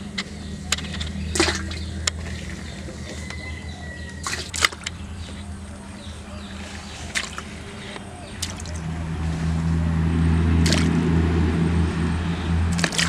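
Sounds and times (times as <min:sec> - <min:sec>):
low steady hum: 0:00.0 - 0:13.0
fish splashing into water basin: 0:00.8 - 0:05.0, 0:07.0 - 0:09.2, 0:10.5 - 0:11.3, 0:12.6 - 0:13.0.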